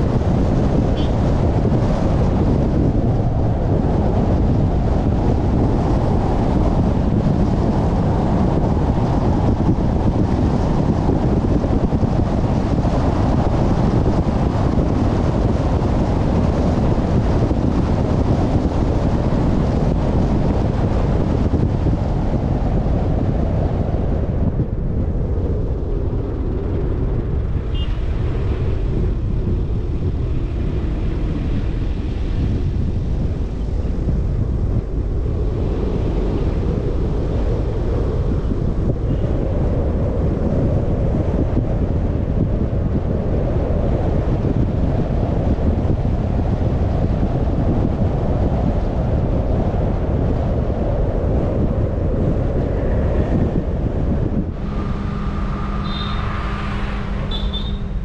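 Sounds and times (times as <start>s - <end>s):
road noise rumble: 0.0s - 58.0s
wind hiss: 51.3s - 58.0s.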